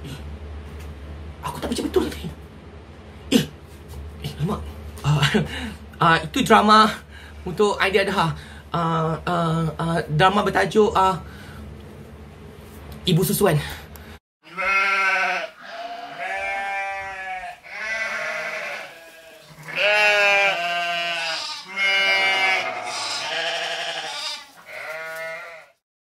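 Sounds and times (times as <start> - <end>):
goats or sheep bleating: 14.4 - 25.8.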